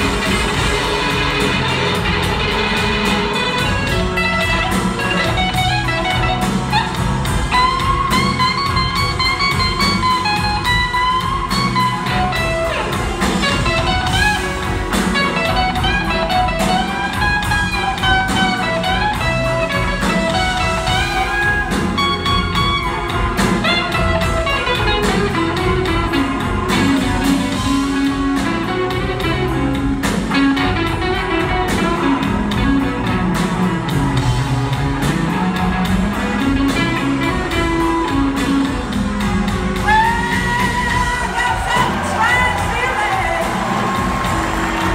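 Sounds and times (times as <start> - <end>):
electric guitar lead with bending notes: 0.0 - 42.0
bass: 0.0 - 44.9
drum kit: 0.0 - 44.9
rhythm guitar: 0.0 - 44.9.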